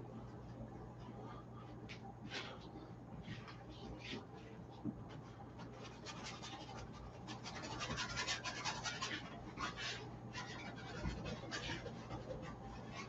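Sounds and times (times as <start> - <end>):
low steady hum: 0.0 - 13.0
paintbrush scraping across canvas: 5.6 - 13.0.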